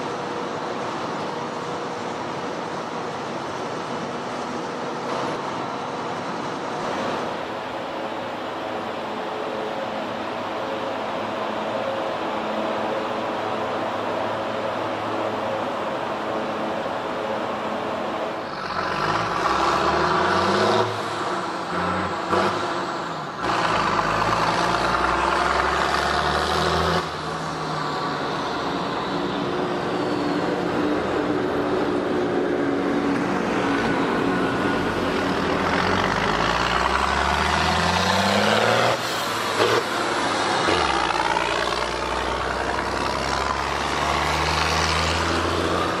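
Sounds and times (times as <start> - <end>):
tractor diesel engine pulling: 16.4 - 46.0.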